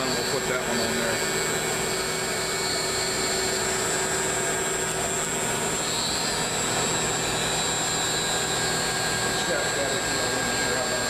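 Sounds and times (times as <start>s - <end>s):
router spindle high whine: 0.0s - 11.0s.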